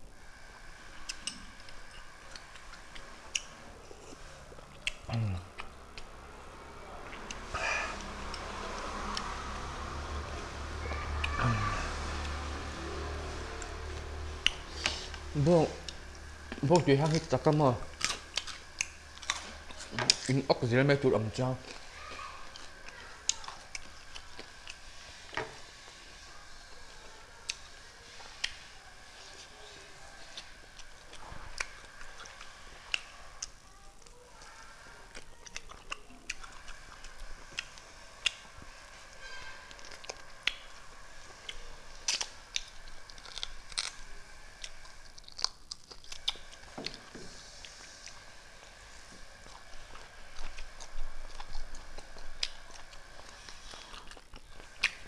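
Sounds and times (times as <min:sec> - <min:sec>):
mouth sounds of eating: 0:00.8 - 0:39.1, 0:39.7 - 0:55.0
person chewing with lip smacks: 0:01.0 - 0:06.2, 0:35.1 - 0:38.7, 0:39.7 - 0:44.0, 0:44.6 - 0:48.2, 0:49.3 - 0:55.0.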